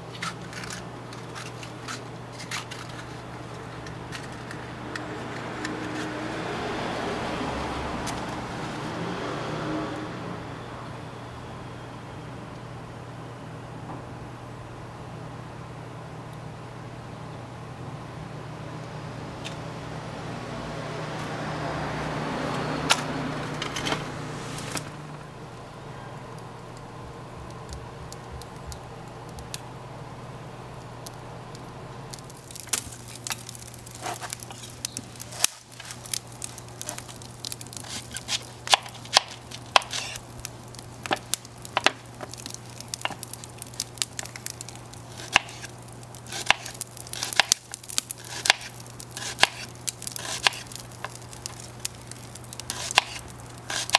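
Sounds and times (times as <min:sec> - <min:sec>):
wood fire crackling and popping: 0:00.0 - 0:08.8, 0:22.4 - 0:53.9
rush of flame: 0:22.9 - 0:25.0
match striking: 0:32.1 - 0:53.9.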